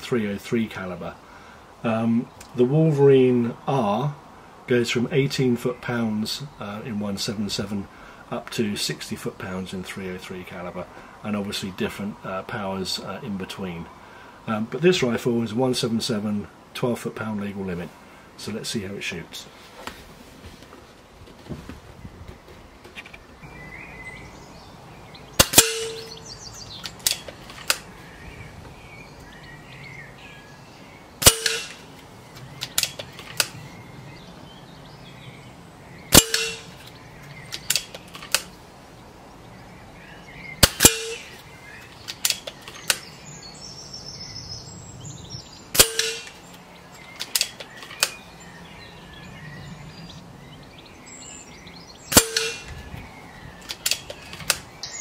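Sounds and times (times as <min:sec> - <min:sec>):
air rifle shot cracking: 0:25.4 - 0:27.9, 0:31.2 - 0:32.0, 0:32.6 - 0:33.6, 0:36.1 - 0:36.9, 0:40.6 - 0:41.4, 0:45.7 - 0:46.5, 0:52.1 - 0:52.8
rifle lever clicks: 0:26.8 - 0:27.9, 0:32.6 - 0:33.6, 0:37.5 - 0:38.5, 0:47.1 - 0:48.2, 0:53.6 - 0:54.7.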